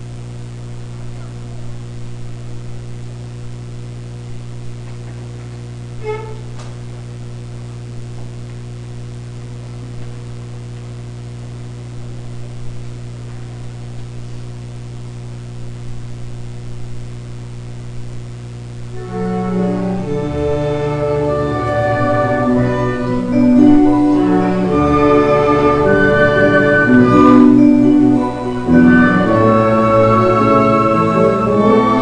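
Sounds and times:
electrical mains hum: 0:00.0 - 0:32.0
sustained string-like music: 0:19.0 - 0:32.0.

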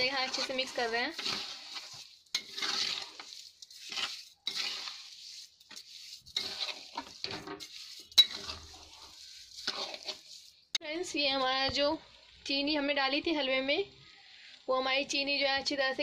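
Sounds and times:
metal spoon scraping in pan: 0:00.0 - 0:10.8
spoon clinking against pan: 0:08.2 - 0:08.6.

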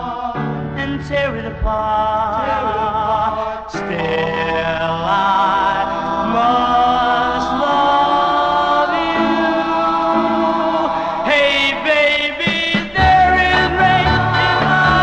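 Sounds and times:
male vocal group harmonies: 0:00.0 - 0:15.0
band playing: 0:06.1 - 0:15.0.

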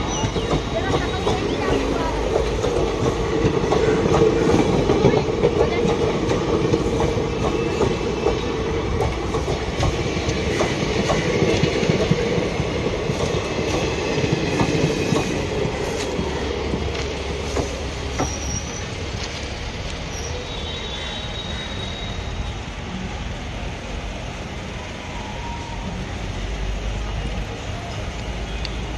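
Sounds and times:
train wheels clicking over rail joints: 0:00.0 - 0:20.1
train wheel squeal: 0:06.7 - 0:08.6, 0:17.4 - 0:19.2, 0:20.0 - 0:22.7.

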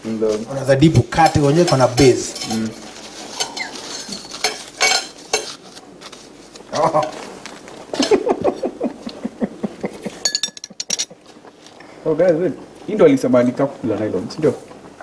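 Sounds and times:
cutlery scraping a ceramic plate: 0:01.2 - 0:05.6.

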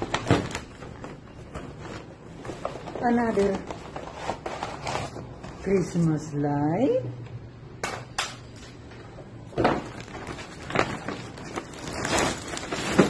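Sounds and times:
plastic bag rustling: 0:00.0 - 0:06.2, 0:09.5 - 0:13.0.

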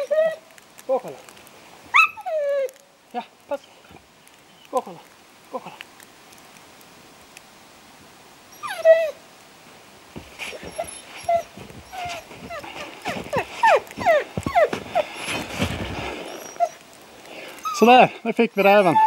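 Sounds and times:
dog whining and yelping: 0:00.0 - 0:00.4, 0:01.9 - 0:02.8, 0:08.5 - 0:09.2, 0:10.4 - 0:15.7, 0:16.3 - 0:16.9, 0:17.6 - 0:19.0
footsteps in deep snow: 0:10.1 - 0:16.8.

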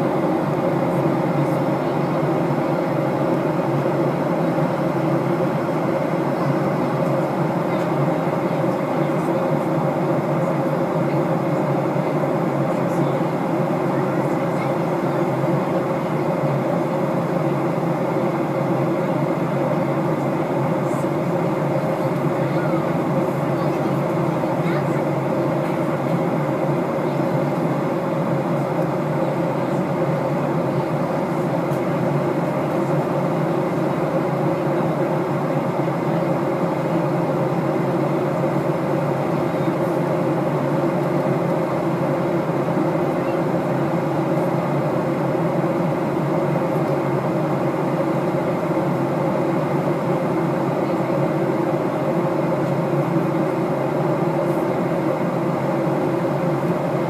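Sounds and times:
airliner cabin engine drone: 0:00.0 - 0:57.0.

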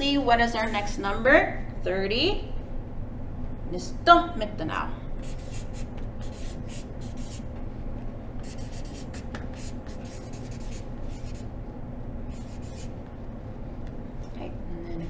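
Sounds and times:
low room hum: 0:00.0 - 0:15.0
marker writing on paper: 0:05.2 - 0:07.5, 0:08.4 - 0:11.5, 0:12.3 - 0:13.0.

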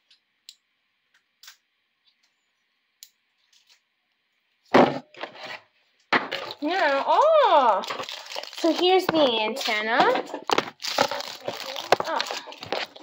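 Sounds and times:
packaging rustling: 0:06.2 - 0:13.0.

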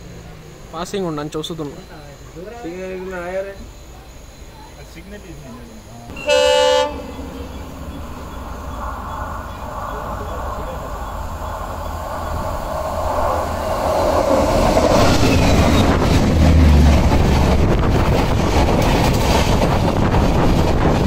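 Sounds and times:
train wheels rumbling on rail: 0:03.0 - 0:21.0
wheels clattering over rail joints: 0:06.1 - 0:21.0.

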